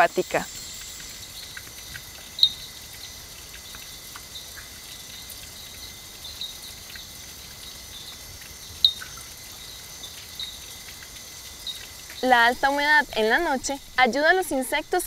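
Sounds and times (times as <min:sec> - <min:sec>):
insect chirps: 0:00.0 - 0:15.0.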